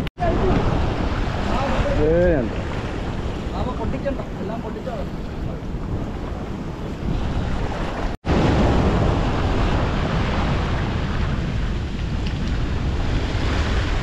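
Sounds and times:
sea surf: 0.0s - 14.0s
wind buffeting microphone: 0.0s - 14.0s.

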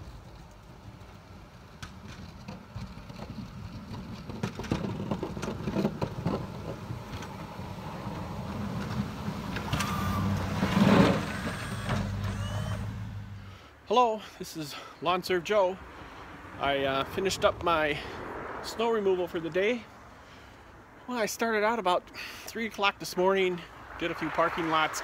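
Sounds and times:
plow blade scraping snow: 2.1s - 13.7s
truck engine running: 7.0s - 13.6s.

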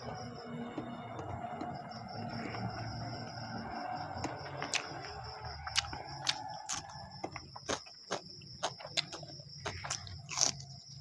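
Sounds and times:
wet chewing smacks: 5.7s - 10.6s.

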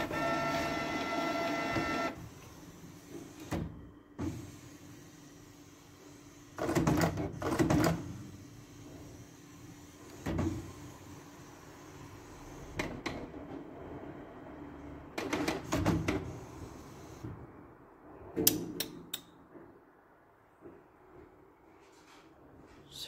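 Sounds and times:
printer mechanism clunking and clicking: 3.1s - 4.5s, 6.6s - 8.1s, 10.1s - 10.8s, 12.7s - 13.6s, 15.1s - 16.3s.

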